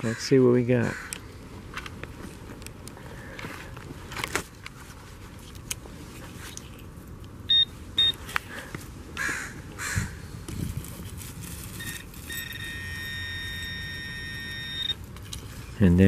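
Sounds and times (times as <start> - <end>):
short high beeps: 7.5 - 8.2, 11.8 - 15.0
scratchy rustles: 10.5 - 12.6.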